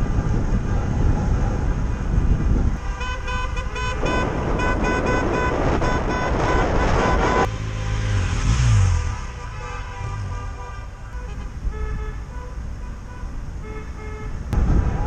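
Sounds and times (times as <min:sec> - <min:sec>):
car driving rumble: 0:00.0 - 0:15.0
car horns tooting: 0:02.8 - 0:08.1, 0:09.0 - 0:14.6.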